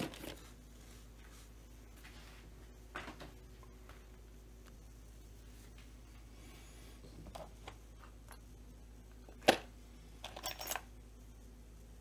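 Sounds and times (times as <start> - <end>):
parts rattling: 9.2 - 10.9.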